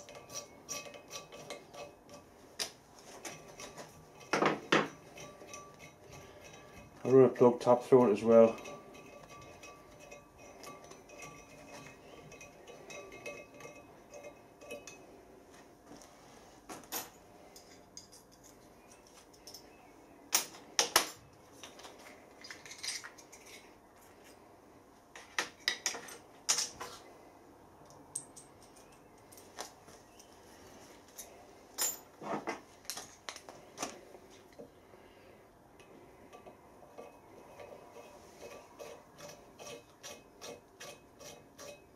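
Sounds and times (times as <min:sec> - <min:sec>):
metal hand tools clinking: 0:03.2 - 0:15.0.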